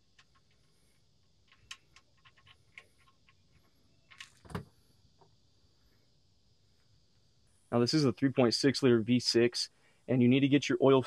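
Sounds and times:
small metallic clicks: 0.0 - 4.6.

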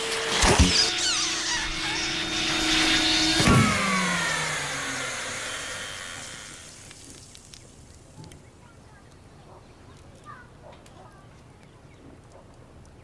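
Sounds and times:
vacuum cleaner motor winding down: 0.0 - 7.5
small high squeaks: 0.0 - 7.7.

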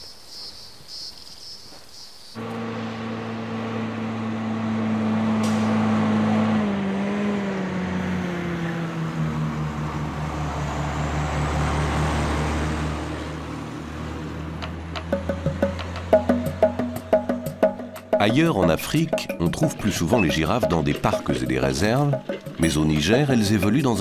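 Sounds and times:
vehicle engine driving by: 2.4 - 24.0
wooden percussion music: 14.6 - 24.0.

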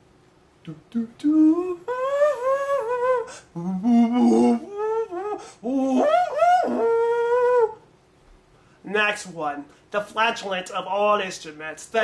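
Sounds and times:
man humming and buzzing a tune: 0.6 - 7.8.

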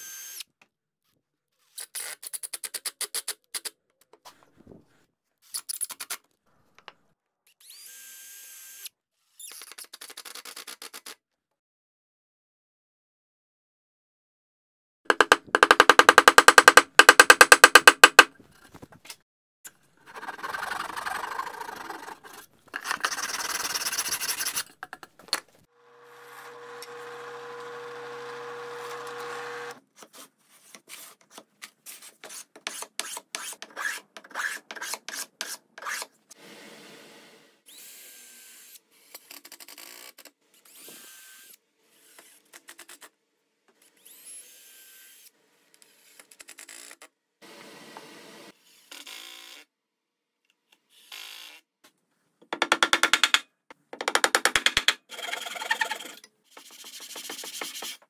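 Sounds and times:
hand tools rasping wood: 20.0 - 24.6, 26.2 - 29.8, 54.0 - 58.0.

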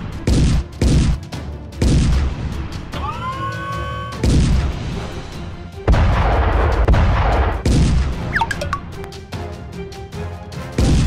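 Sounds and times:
background music: 0.0 - 11.0
short chirps: 8.3 - 8.8.

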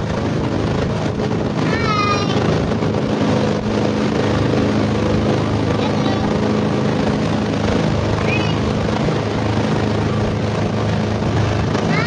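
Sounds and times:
motorboat engine droning: 0.0 - 12.0.

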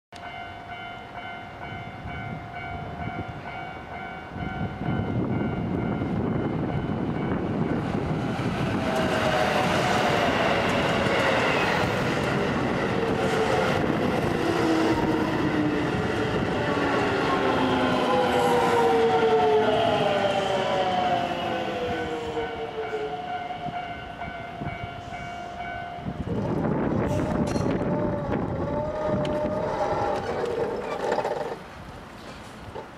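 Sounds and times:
level crossing warning bell: 0.2 - 8.2, 15.0 - 26.3
train wheels rumbling and clattering: 4.4 - 22.2, 26.2 - 32.9
train motor whine: 26.4 - 31.6.

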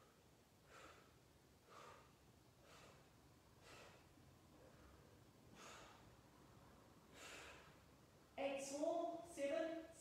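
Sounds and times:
faint quick breathing: 0.7 - 4.1, 5.6 - 6.1, 7.1 - 7.8.

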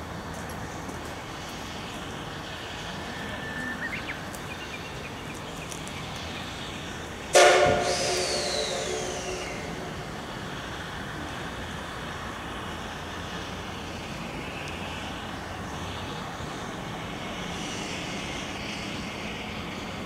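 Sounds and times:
steam locomotive whistle: 7.3 - 10.1.

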